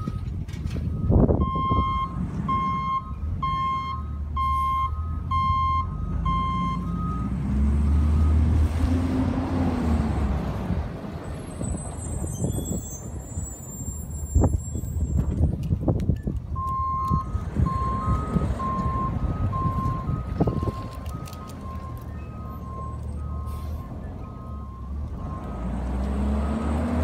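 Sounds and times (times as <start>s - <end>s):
truck backup alarm beeping: 0.0s - 8.5s, 16.2s - 27.0s
truck engine revving: 1.6s - 13.3s, 16.6s - 27.0s
thin high squeal: 11.6s - 15.2s.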